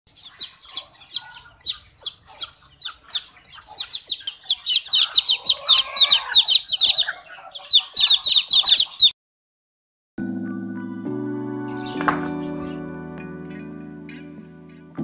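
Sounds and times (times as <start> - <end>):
chicks peeping: 0.1 - 9.2, 11.7 - 12.8
hen clucking: 0.1 - 9.2.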